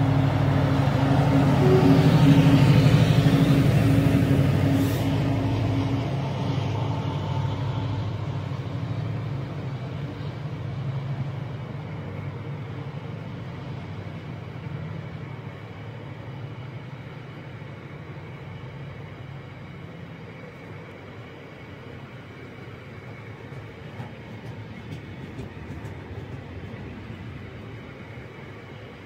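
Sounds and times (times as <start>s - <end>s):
diesel locomotive engine running: 0.0s - 29.0s
wagons rolling past: 22.4s - 28.2s.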